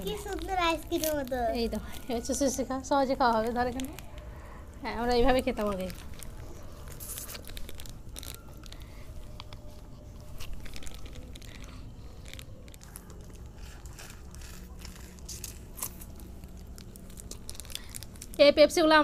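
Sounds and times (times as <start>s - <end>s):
crunching frozen ice pops: 5.4s - 18.5s.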